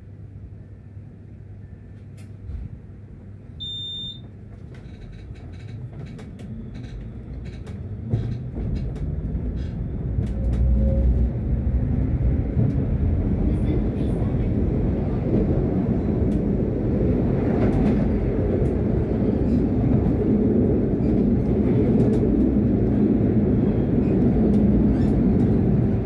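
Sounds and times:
tram running rumble: 0:00.0 - 0:26.0
high electronic beep: 0:03.6 - 0:04.2.

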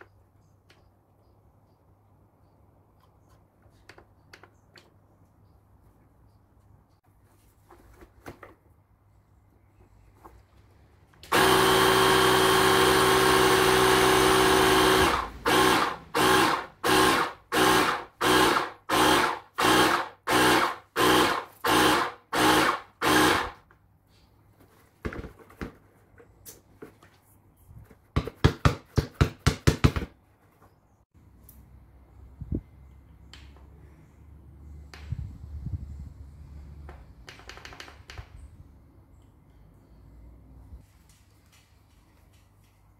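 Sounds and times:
cordless compressor running: 0:11.3 - 0:23.6.

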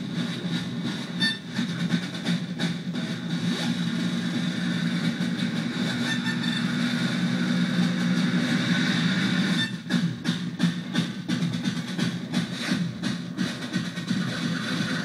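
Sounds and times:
low drone: 0:00.0 - 0:10.8
synthesizer drum sequence with delay: 0:00.0 - 0:15.0.

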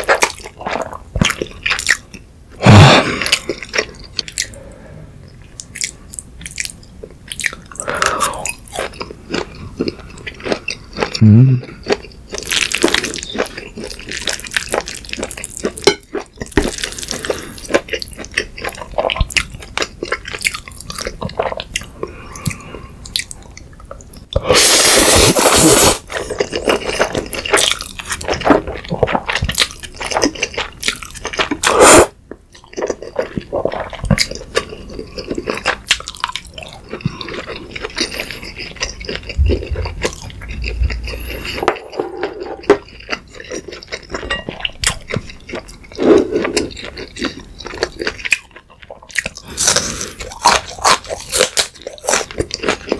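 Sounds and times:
person chewing noodles: 0:00.0 - 0:52.9
loud slurp: 0:24.5 - 0:26.0.

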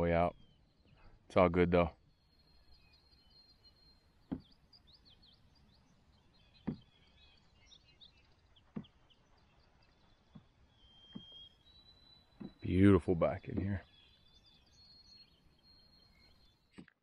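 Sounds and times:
faint birds chirping: 0:00.0 - 0:17.0
paddle knocking canoe side: 0:04.3 - 0:04.5, 0:06.6 - 0:06.9.

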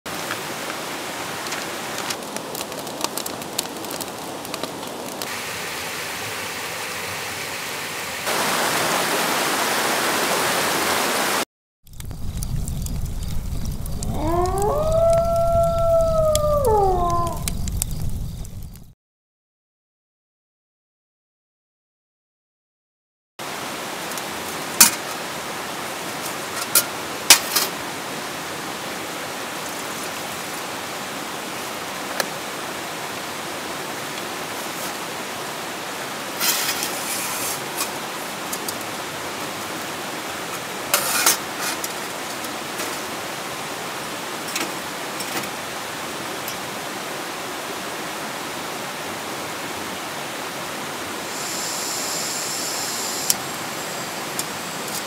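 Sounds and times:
rocky stream rushing: 0:00.1 - 0:02.8, 0:03.4 - 0:11.4, 0:23.4 - 0:54.9.

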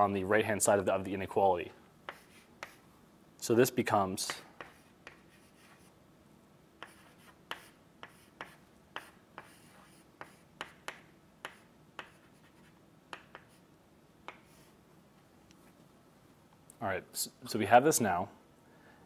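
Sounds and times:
chalk tapping and scratching: 0:02.1 - 0:02.8, 0:04.2 - 0:05.9, 0:06.8 - 0:13.6, 0:14.3 - 0:14.8.

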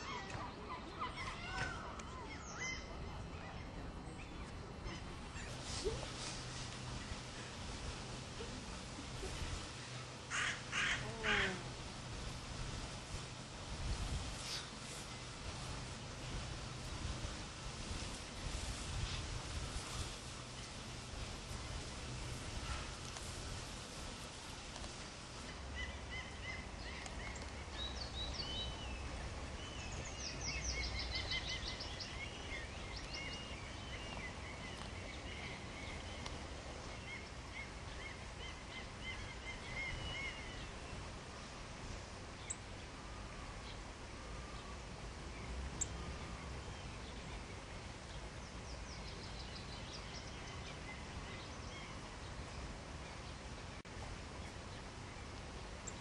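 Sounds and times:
small birds chirping and trilling: 0:00.0 - 0:07.6, 0:24.8 - 0:41.4
outdoor background hiss: 0:00.0 - 0:56.0.

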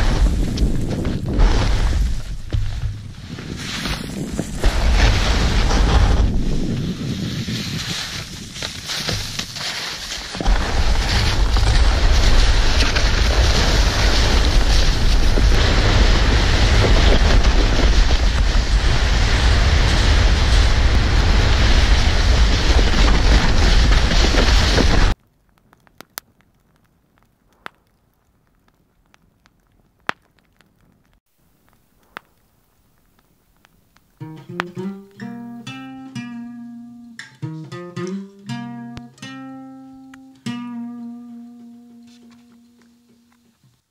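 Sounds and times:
wind rumble on microphone: 0:00.0 - 0:09.3, 0:10.4 - 0:25.2
sled rushing over snow: 0:00.0 - 0:25.2
campfire crackling and popping: 0:00.0 - 0:43.9.

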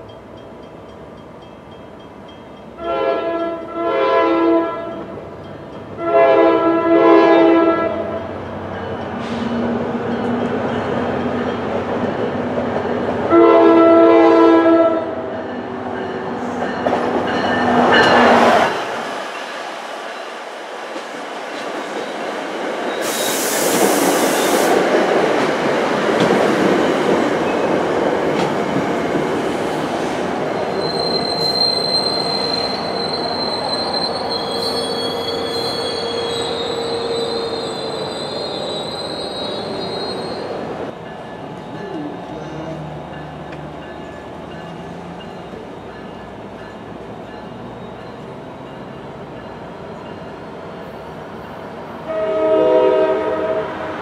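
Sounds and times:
train horn: 0:02.8 - 0:05.1, 0:06.0 - 0:08.3, 0:13.3 - 0:15.3, 0:52.0 - 0:54.0
wheel and brake squeal: 0:30.7 - 0:40.6.

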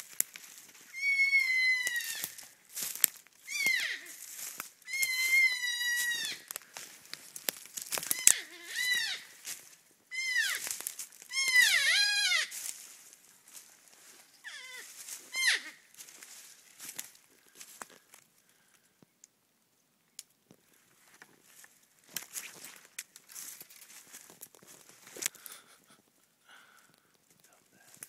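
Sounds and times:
porcupine whining cries: 0:00.9 - 0:02.4, 0:03.4 - 0:06.5, 0:08.0 - 0:09.4, 0:10.1 - 0:12.6, 0:14.4 - 0:15.8
clicks and rustles: 0:06.5 - 0:09.8, 0:20.2 - 0:26.2.

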